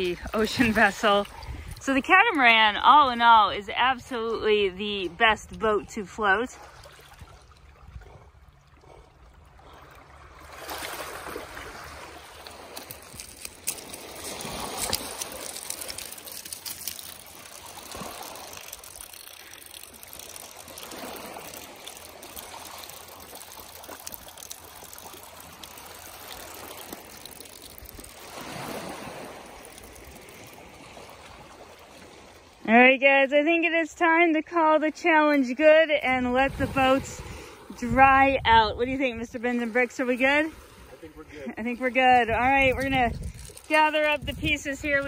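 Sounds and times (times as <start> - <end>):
water pouring onto pebbles: 0.0 - 2.2, 12.2 - 32.3, 42.5 - 45.0.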